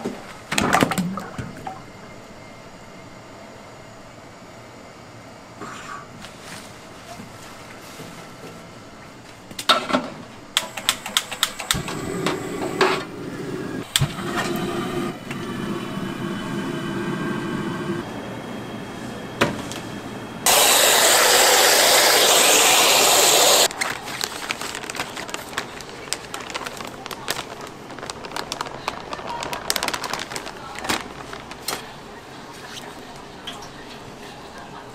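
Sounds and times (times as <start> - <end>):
loud steady hiss: 20.4 - 23.7.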